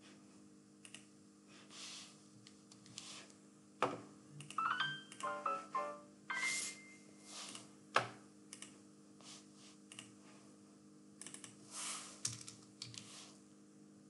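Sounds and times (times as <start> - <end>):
faint electrical hum: 0.0 - 14.0
electronic beeping jingle: 4.6 - 7.1.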